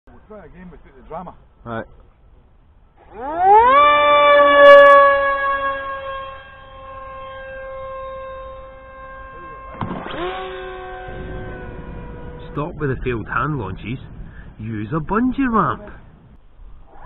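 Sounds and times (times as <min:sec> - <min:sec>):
model plane electric motor whine: 0:03.0 - 0:12.5
second motor whine: 0:03.0 - 0:13.1
rush of noise: 0:09.8 - 0:17.0.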